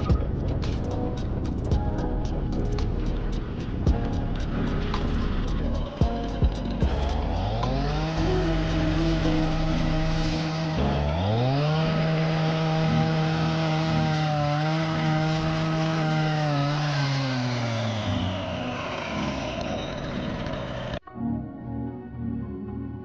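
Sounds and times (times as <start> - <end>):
soft background music: 0.0 - 16.3, 21.0 - 23.0
chainsaw revving and cutting: 3.9 - 21.0.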